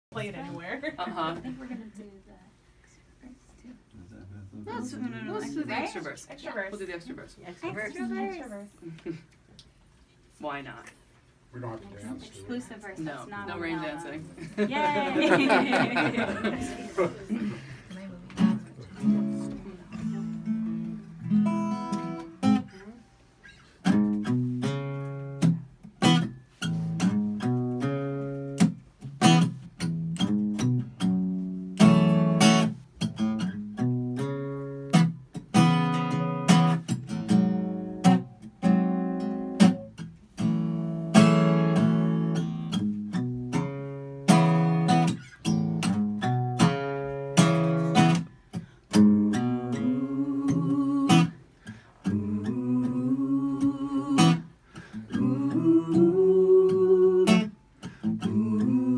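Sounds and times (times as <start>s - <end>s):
acoustic guitar strumming: 18.4s - 58.9s
people singing: 49.3s - 51.4s, 52.0s - 58.9s.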